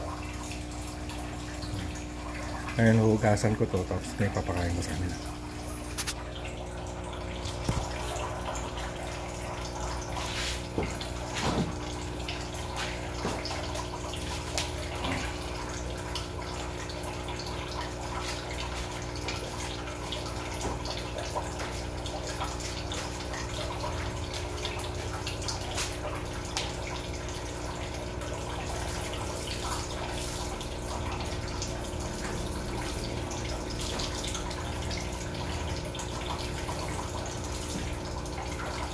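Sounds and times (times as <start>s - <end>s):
water drips: 0.0s - 38.9s
water running and trickling: 0.0s - 38.9s.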